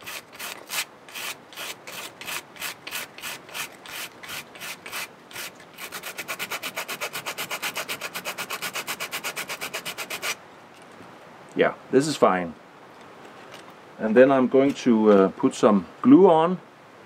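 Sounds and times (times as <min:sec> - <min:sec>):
sandpaper rubbing bark: 0:00.0 - 0:10.4.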